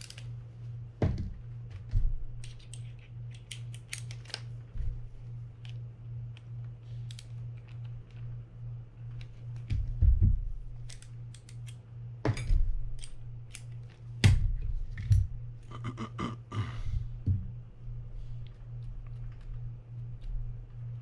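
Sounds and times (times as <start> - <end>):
low hum: 0.0 - 21.0
small metallic clicks: 10.8 - 11.8.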